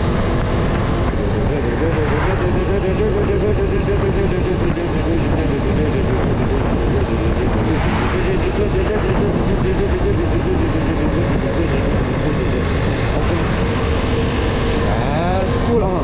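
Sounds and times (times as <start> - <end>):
motorcycle engine cruising: 0.0 - 16.0
wind rumble on microphone: 0.0 - 16.0.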